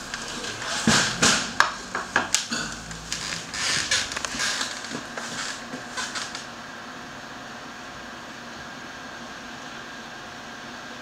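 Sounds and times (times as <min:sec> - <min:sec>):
rustling: 0:00.0 - 0:06.5
steady hiss: 0:00.0 - 0:06.9.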